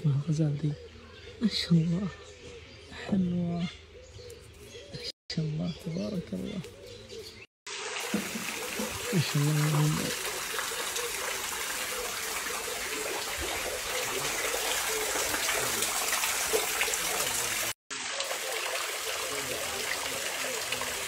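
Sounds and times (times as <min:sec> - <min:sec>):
water splashing into a pool: 0:07.7 - 0:21.0.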